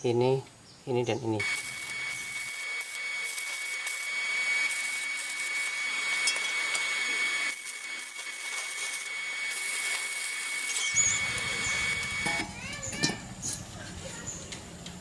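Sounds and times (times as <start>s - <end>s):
welding arc crackling: 1.4s - 12.9s.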